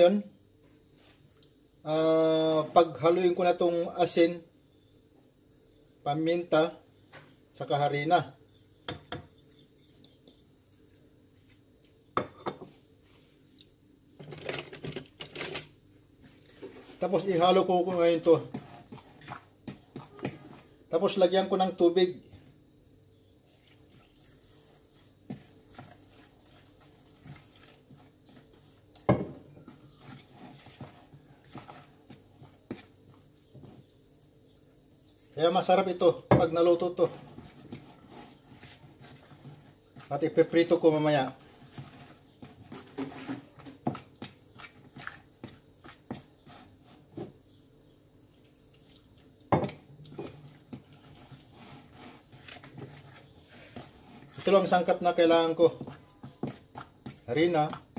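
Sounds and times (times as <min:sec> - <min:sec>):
fork stirring batter in bowl: 0:07.6 - 0:11.0, 0:16.2 - 0:47.4, 0:48.2 - 0:57.9
knock on bowl: 0:29.1 - 0:29.4
fork scraping plastic bowl: 0:29.7 - 0:32.9, 0:50.2 - 0:55.0.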